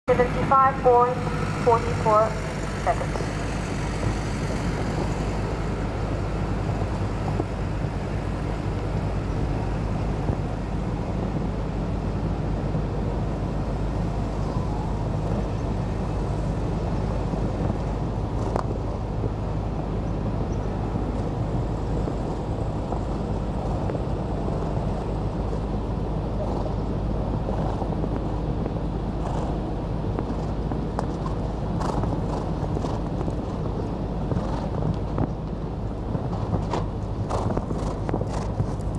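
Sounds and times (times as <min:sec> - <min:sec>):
outdoor background rumble: 0:00.0 - 0:38.9.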